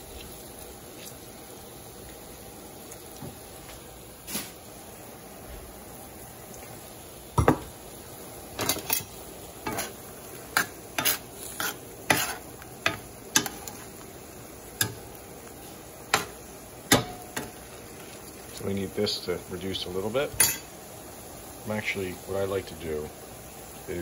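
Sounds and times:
shrimp sizzling: 0.0 - 24.0
utensil scraping a skillet: 8.5 - 18.7.

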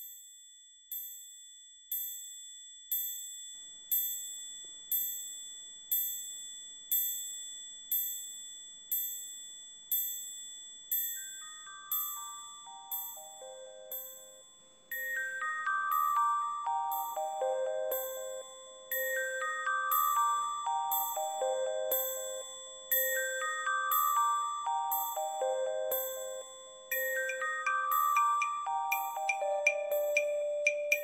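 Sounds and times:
held high tone: 26.9 - 31.0.

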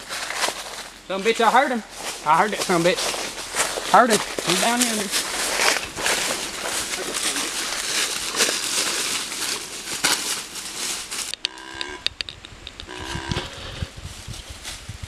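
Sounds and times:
footsteps crunching through dry leaves: 0.0 - 11.9, 12.9 - 15.0.

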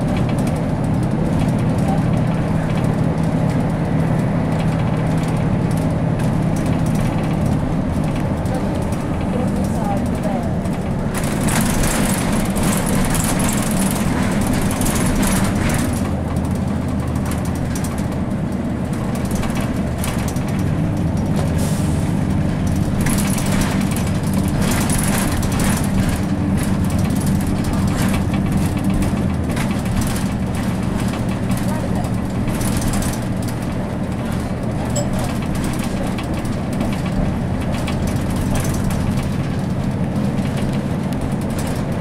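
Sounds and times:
bus diesel engine running: 0.0 - 42.0
road noise: 0.0 - 42.0
clicks and rattles: 22.7 - 42.0.

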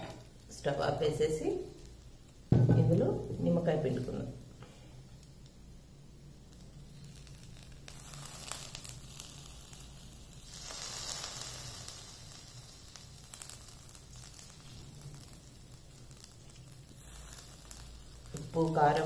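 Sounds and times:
food sizzling in hot pan: 0.0 - 19.0.

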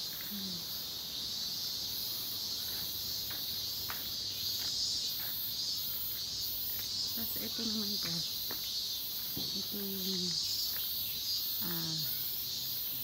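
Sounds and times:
chorus of insects: 0.0 - 13.0
faint footsteps on gravel: 2.5 - 11.0.

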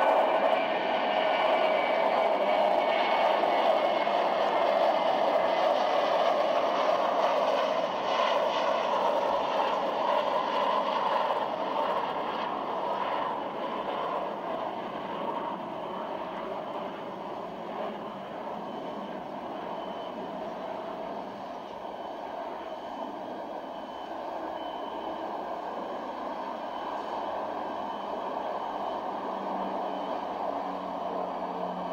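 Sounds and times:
turboprop airliner flying overhead: 0.0 - 31.9.

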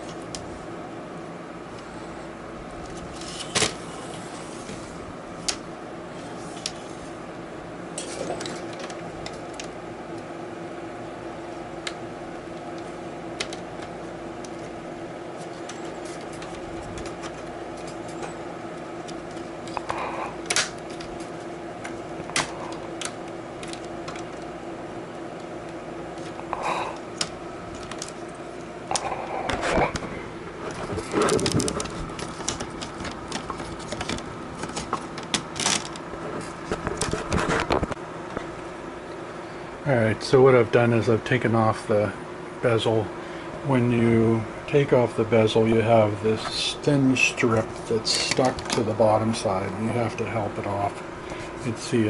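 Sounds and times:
steady low hum: 0.0 - 52.0.

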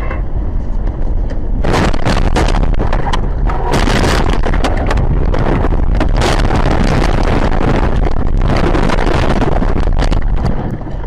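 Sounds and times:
knocks and scrapes against car body: 0.0 - 6.7
car rumbling through snow and brush: 0.4 - 11.0.

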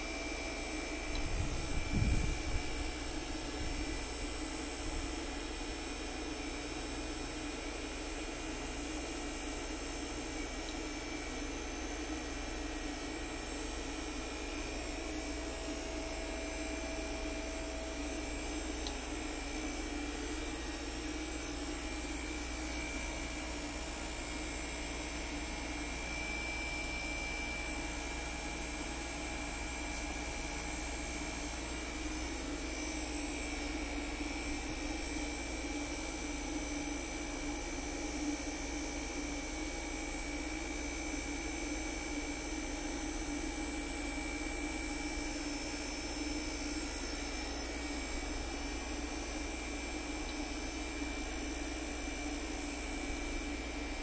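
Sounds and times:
air conditioner whirring and humming: 0.0 - 54.0
high whine: 0.6 - 5.4.

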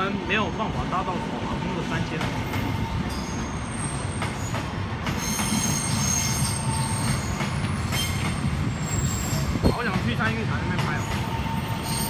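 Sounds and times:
low train rumble: 0.0 - 12.0
train wheels squealing: 2.4 - 9.8, 10.8 - 12.0.

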